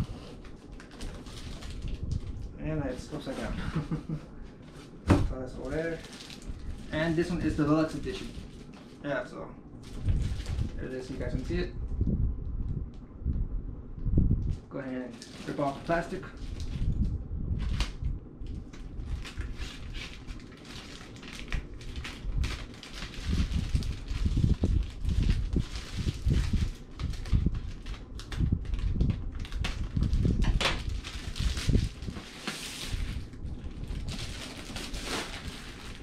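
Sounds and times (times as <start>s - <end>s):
plastic wrapping crinkling: 0.0s - 9.0s, 9.8s - 11.6s, 14.9s - 36.0s.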